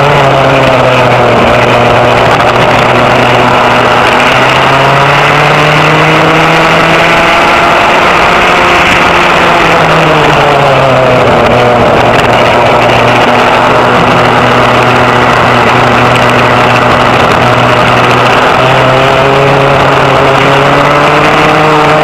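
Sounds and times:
racing kart engine: 0:00.0 - 0:22.0.

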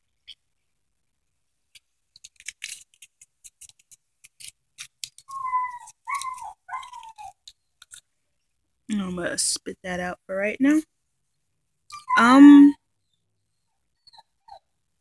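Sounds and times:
paper candy wrapper crinkling: 0:01.2 - 0:08.1.

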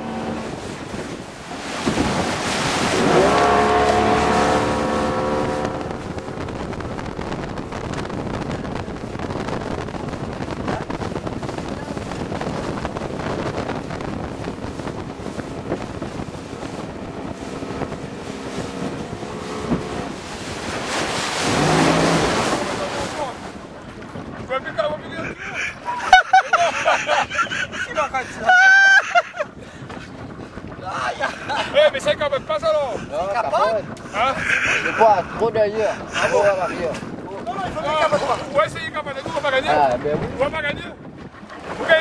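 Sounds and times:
outboard motor droning: 0:00.0 - 0:24.4
wake water rushing: 0:00.0 - 0:42.0
wind buffeting microphone: 0:00.0 - 0:42.0.

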